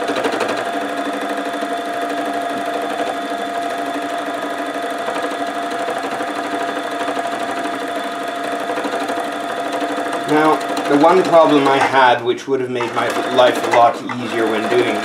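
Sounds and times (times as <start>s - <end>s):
felting machine mechanical hum: 0.0s - 15.0s.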